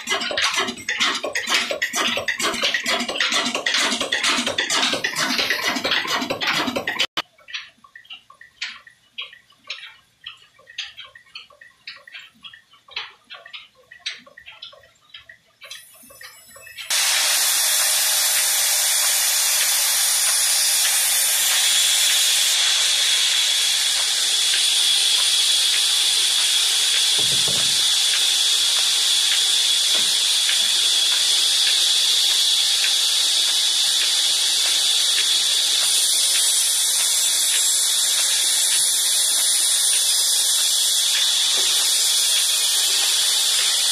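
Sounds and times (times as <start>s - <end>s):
band saw cutting wood: 0.0s - 7.2s, 16.8s - 43.9s.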